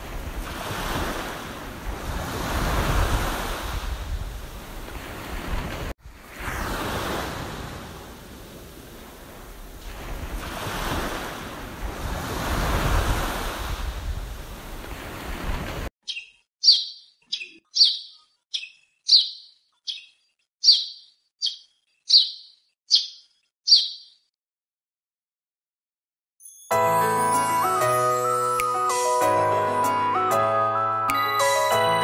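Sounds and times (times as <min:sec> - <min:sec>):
small waves washing on beach: 0:00.0 - 0:15.9
bird chirping: 0:16.0 - 0:24.3.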